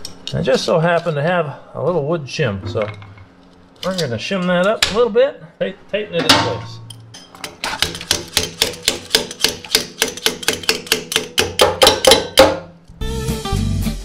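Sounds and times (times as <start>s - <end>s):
wrench tapping on metal: 6.9s - 12.6s
music: 12.9s - 14.0s.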